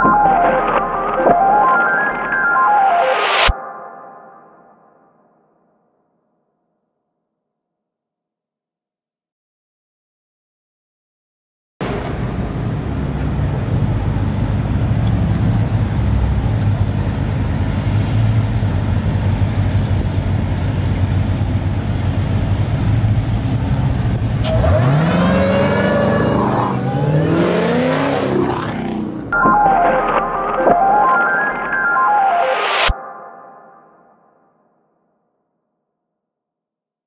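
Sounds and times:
car engines idling and revving: 11.8s - 29.4s.

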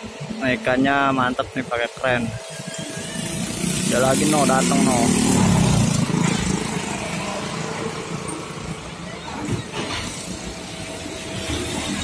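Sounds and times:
road traffic noise: 0.0s - 12.0s
motorcycle passing: 2.5s - 8.8s.

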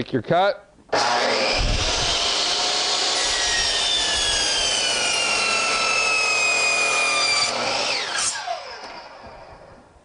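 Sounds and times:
miter saw cutting board: 0.9s - 9.9s
saw motor winding down: 0.9s - 9.9s.

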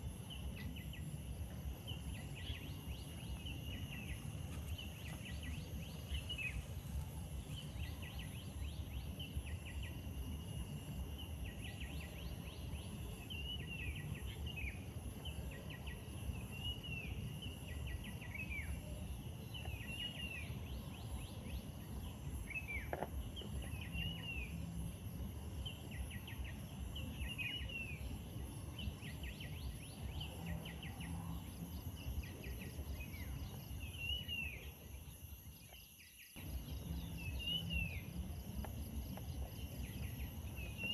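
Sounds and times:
insect hum: 0.0s - 40.9s
bird chirps: 35.9s - 40.9s
low rumble: 36.4s - 40.9s.

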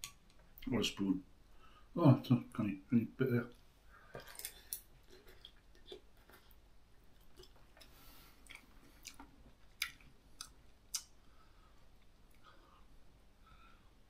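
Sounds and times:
man chewing noodles: 4.2s - 12.7s.

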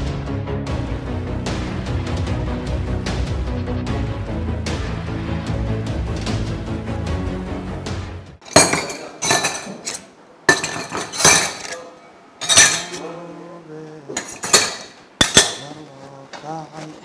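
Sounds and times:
metal tumblers clinking: 8.4s - 13.0s, 14.2s - 15.8s.

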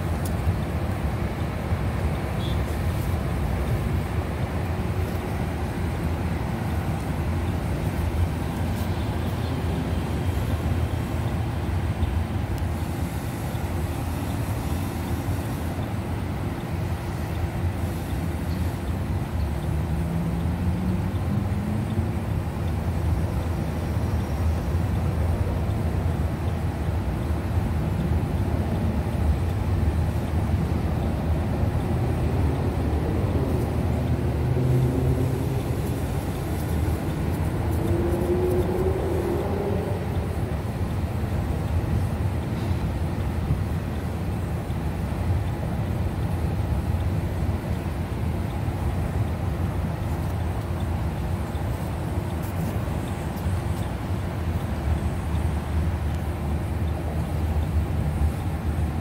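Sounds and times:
road traffic noise: 0.0s - 59.0s
train wheels rumbling on rails: 0.0s - 59.0s
vehicle engine revving: 34.0s - 40.4s.

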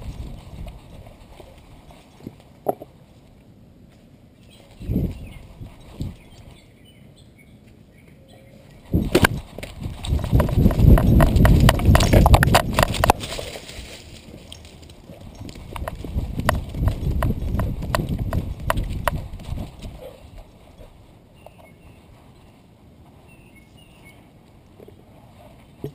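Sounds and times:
rubbing and sharp clicks: 9.0s - 13.4s.

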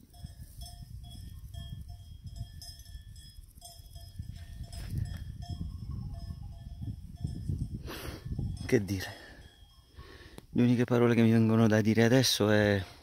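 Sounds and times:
cowbells clanking: 0.0s - 10.2s.

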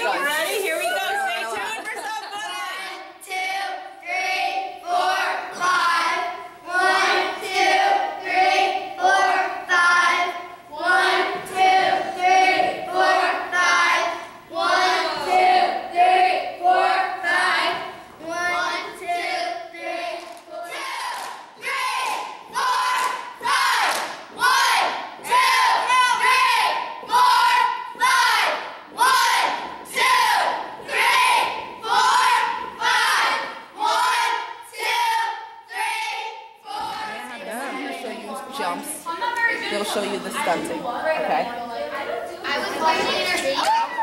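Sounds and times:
girls shouting: 0.0s - 2.9s, 42.6s - 44.0s
girls chanting in unison: 0.0s - 39.7s.

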